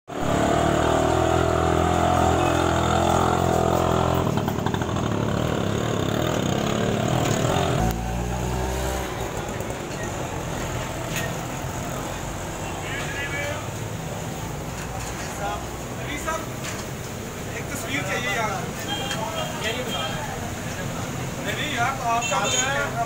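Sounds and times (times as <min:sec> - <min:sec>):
small vehicle engine running: 0:00.1 - 0:12.2
mixed traffic noise: 0:00.1 - 0:23.0.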